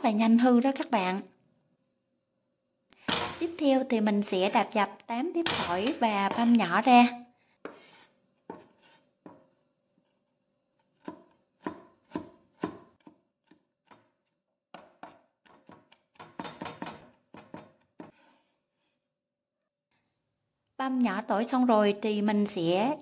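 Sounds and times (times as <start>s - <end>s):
cleaver chopping on wooden board: 11.0s - 14.1s, 14.8s - 18.2s.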